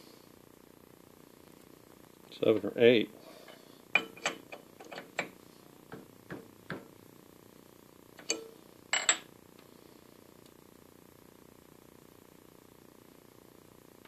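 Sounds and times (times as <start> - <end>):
faint steady hum: 0.0 - 14.0
metal clinks and knocks: 4.0 - 5.3, 8.2 - 9.3.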